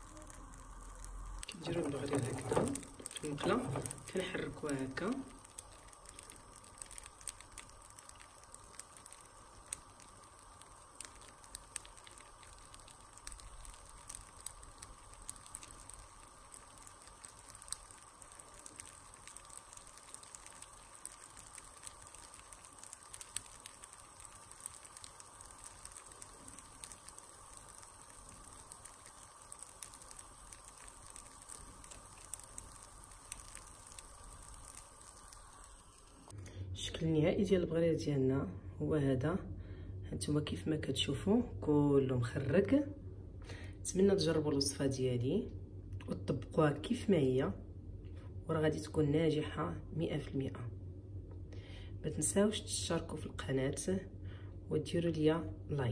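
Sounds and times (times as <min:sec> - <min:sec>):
batter sizzling in a pan: 0:00.0 - 0:36.4.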